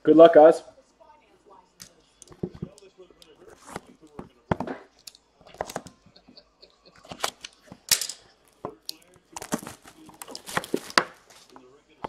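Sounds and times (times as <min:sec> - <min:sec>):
packaging rustling: 0:08.4 - 0:11.5.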